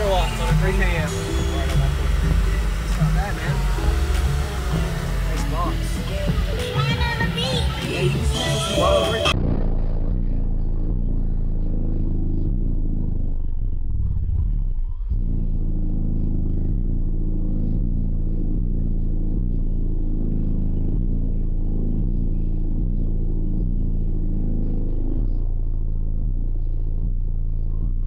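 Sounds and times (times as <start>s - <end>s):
loud bass-heavy music in car: 0.0s - 28.0s.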